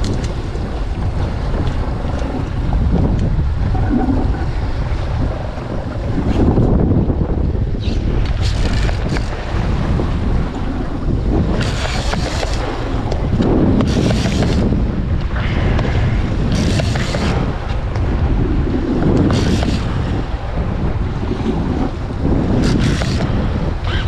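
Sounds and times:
strong wind buffeting microphone: 0.0s - 24.0s
waves splashing against boat hull: 0.0s - 24.0s.

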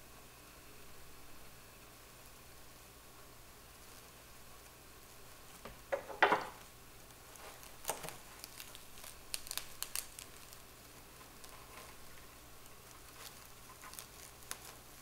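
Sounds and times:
loofah sponge crunching: 7.0s - 15.0s.

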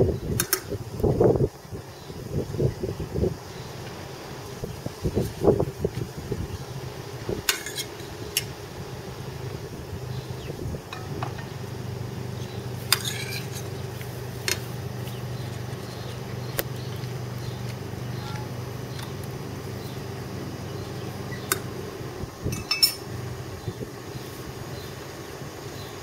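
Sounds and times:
metal spoon clinking on pan: 22.5s - 23.0s.

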